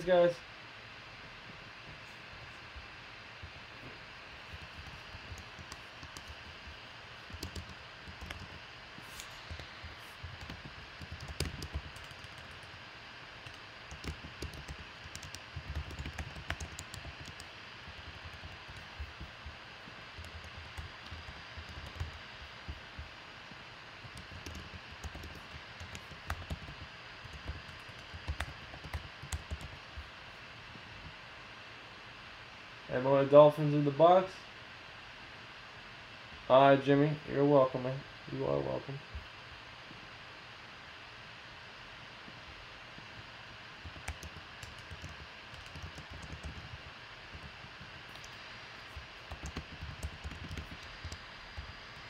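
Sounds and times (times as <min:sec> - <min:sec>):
room tone hiss: 0:00.0 - 0:52.0
keyboard typing: 0:04.4 - 0:12.8, 0:13.4 - 0:23.2, 0:24.0 - 0:30.1, 0:43.0 - 0:52.0.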